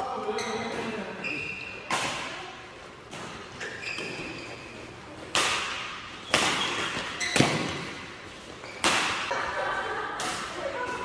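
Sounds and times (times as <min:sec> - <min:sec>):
rackets striking shuttlecock: 0:01.9 - 0:02.4, 0:05.2 - 0:09.5.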